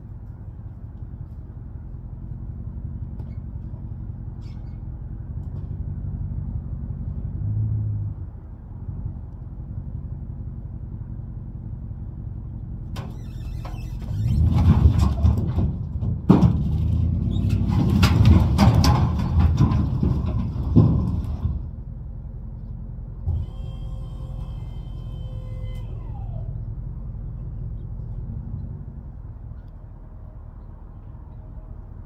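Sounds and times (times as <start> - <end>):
low motor hum: 0.0 - 32.0
firewood logs tumbling and clattering: 13.6 - 23.4.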